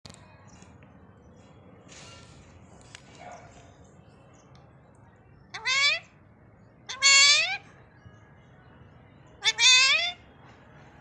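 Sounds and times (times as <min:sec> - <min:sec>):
parakeet calling: 0:05.5 - 0:06.1, 0:06.9 - 0:07.7, 0:09.4 - 0:10.2.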